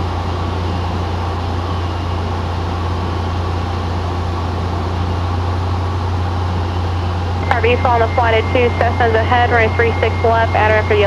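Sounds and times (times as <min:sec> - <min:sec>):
airplane cabin engine drone: 0:00.0 - 0:11.0.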